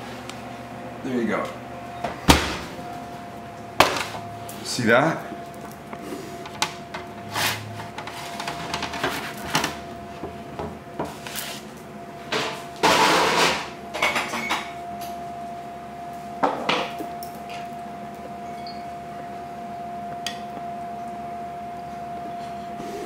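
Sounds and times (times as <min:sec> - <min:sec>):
faint steady hum: 0:00.0 - 0:23.0
loud scrape: 0:07.3 - 0:08.4
cookware and utensils clattering: 0:12.9 - 0:14.8.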